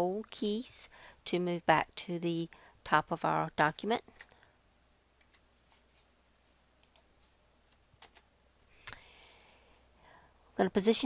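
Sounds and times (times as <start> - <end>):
faint keyboard clicks: 4.1 - 4.4, 6.8 - 10.2.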